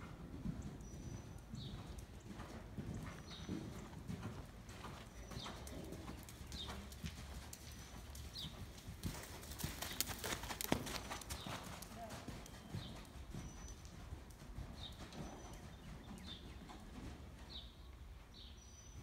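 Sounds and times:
hoofbeats on sand: 0.0s - 17.7s.

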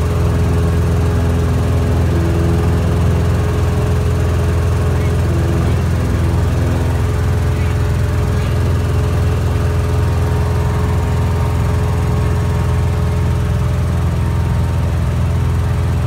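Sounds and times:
aircraft engine and propeller drone: 0.0s - 16.0s.

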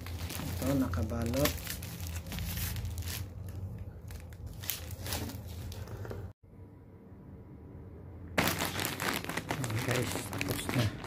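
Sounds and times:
plastic bags crinkling: 0.0s - 5.8s, 8.4s - 11.0s.

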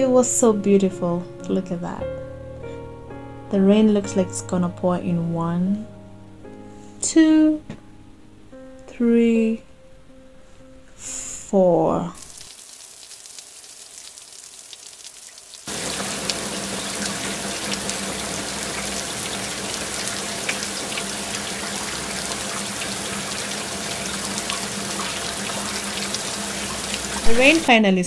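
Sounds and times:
heavy rain on pool and deck: 12.2s - 27.7s.

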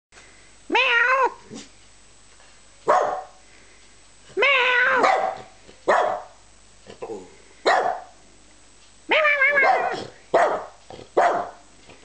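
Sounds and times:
dog barking: 2.9s - 3.4s, 5.0s - 6.4s, 7.6s - 8.1s, 9.6s - 11.6s.

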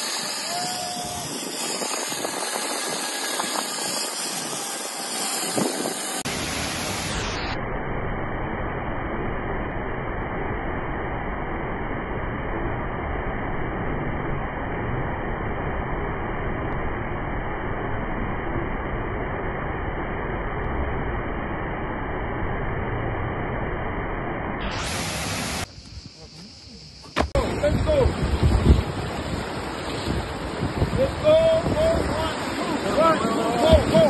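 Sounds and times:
wind rushing over microphone: 0.0s - 7.6s, 27.2s - 34.0s.

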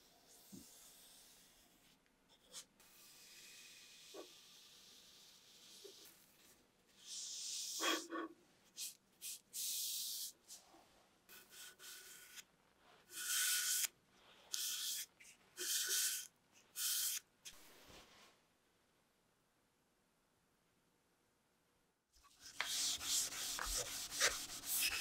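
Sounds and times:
foam brush swishing on wood: 22.4s - 25.0s
brush squeak: 22.7s - 25.0s.

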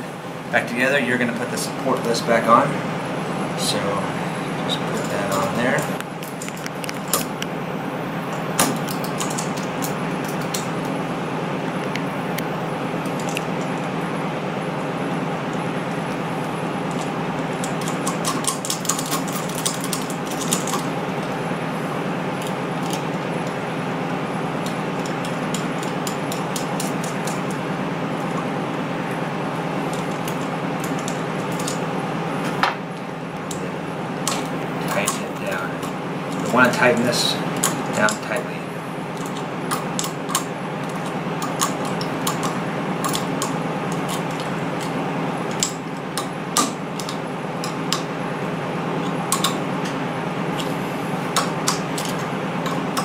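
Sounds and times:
steady hum and hiss: 0.0s - 53.0s.

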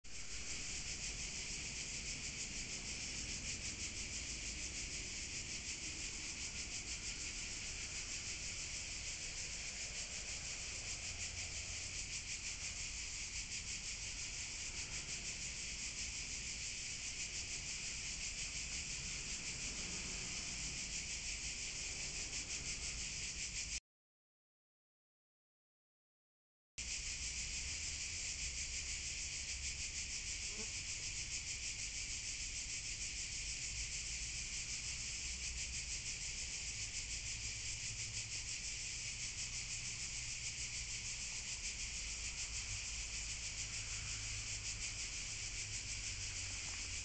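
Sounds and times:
insects chirring: 0.1s - 23.8s, 26.8s - 47.0s.

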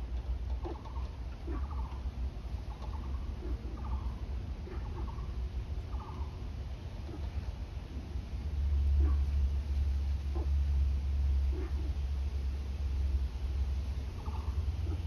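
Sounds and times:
rattling animal call: 0.0s - 6.4s, 14.1s - 15.0s
steady low rumble: 0.0s - 15.0s.

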